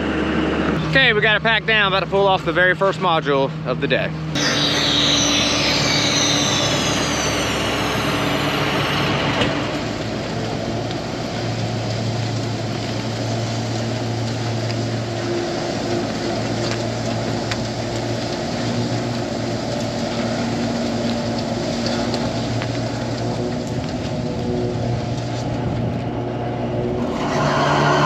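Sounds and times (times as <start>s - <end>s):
tractor diesel engine running: 0.0s - 28.0s
high hiss: 4.4s - 9.9s.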